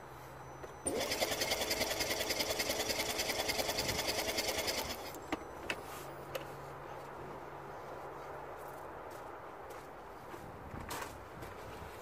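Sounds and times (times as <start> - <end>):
engine cranking on starter: 0.8 - 5.2.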